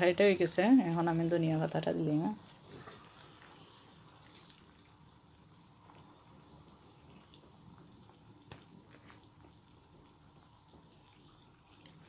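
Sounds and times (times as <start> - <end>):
curry simmering with bubbles: 0.0 - 12.0.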